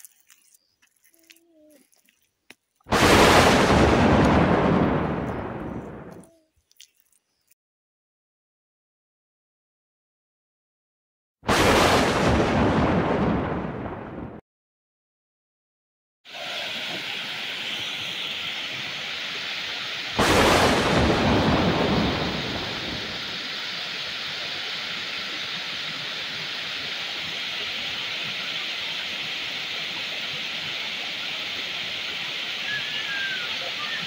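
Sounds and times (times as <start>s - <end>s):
water rushing over rocks: 2.9s - 6.0s, 16.3s - 34.0s.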